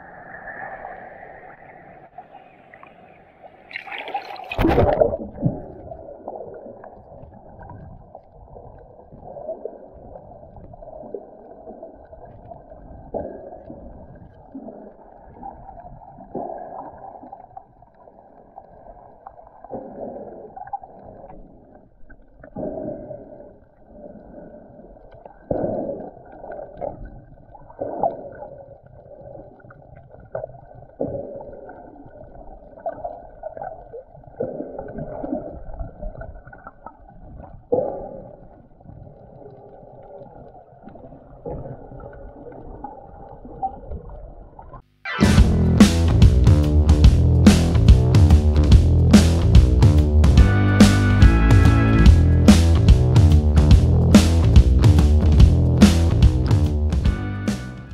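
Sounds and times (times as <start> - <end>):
water surging underwater: 0.0 - 44.5.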